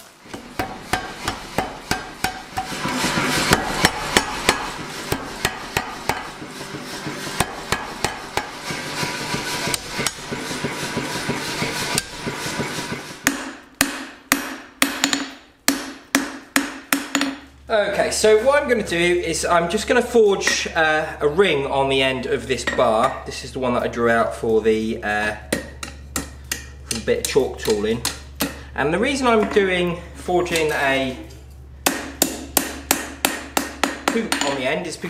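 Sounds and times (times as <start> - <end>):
power hammer pounding steel: 0.2 - 17.4, 31.8 - 34.7
hand hammer blows on anvil: 0.3 - 17.4, 31.8 - 34.8.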